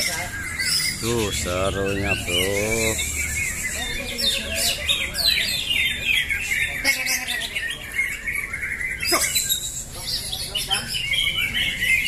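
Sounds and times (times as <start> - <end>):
birds chattering and singing: 0.0 - 12.0.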